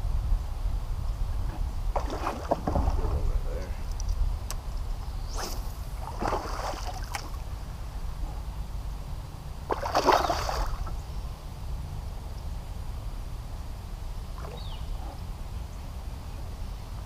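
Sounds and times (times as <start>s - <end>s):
low steady rumble: 0.0s - 17.0s
fish splashing in water: 5.4s - 7.4s, 9.7s - 10.9s.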